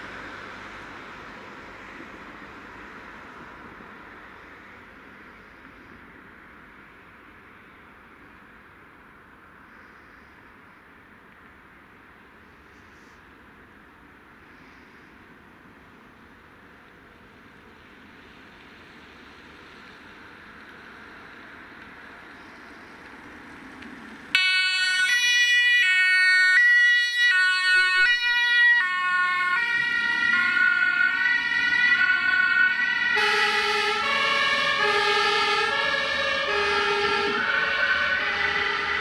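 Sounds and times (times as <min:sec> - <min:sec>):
faint vehicle noise: 0:00.0 - 0:39.0
two-tone emergency siren: 0:24.3 - 0:39.0.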